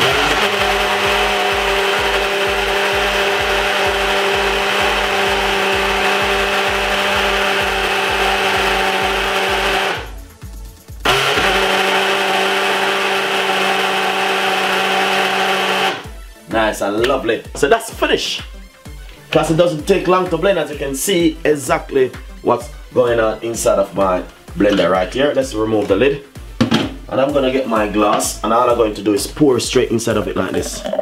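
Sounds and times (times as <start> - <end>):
blender running: 0.0 - 10.2, 11.0 - 16.2.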